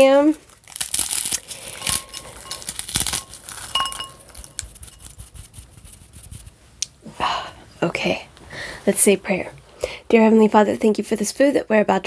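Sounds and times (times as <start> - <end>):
dry topping crushed with crackling: 0.3 - 5.0
pieces clinking in glass bowl: 1.7 - 5.1.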